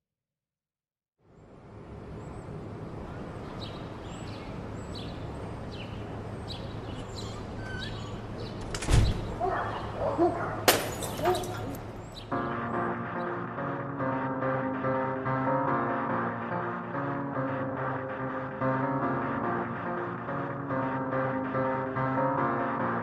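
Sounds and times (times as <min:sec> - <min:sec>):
birds chirping: 0:01.3 - 0:14.0
song music: 0:12.4 - 0:23.0.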